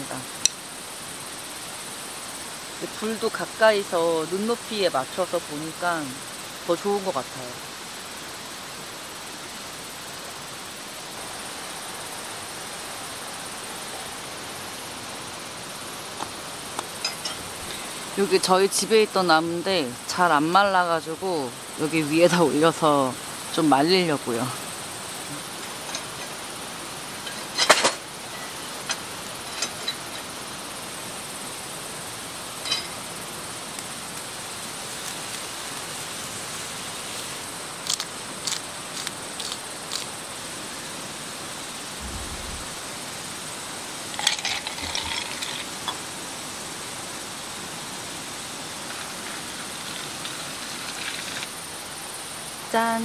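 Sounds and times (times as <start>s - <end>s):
wood fire crackling and popping: 32.6s - 40.2s.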